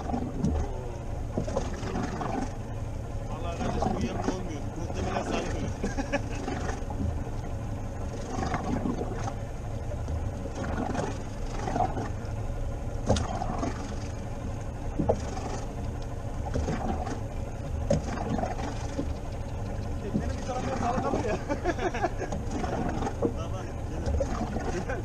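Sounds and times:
boat engine low rumble: 0.0 - 25.0
sharp clicks and knocks: 13.0 - 13.7.

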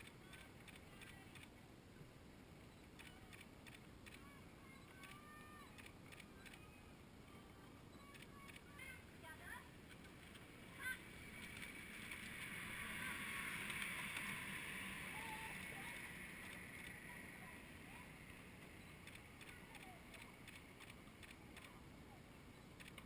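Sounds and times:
river wash: 9.1 - 23.0.

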